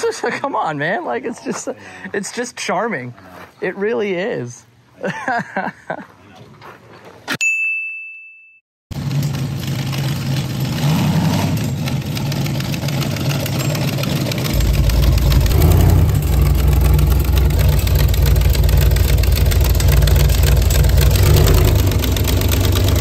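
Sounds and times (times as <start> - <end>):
deep engine exhaust: 8.9 - 23.0.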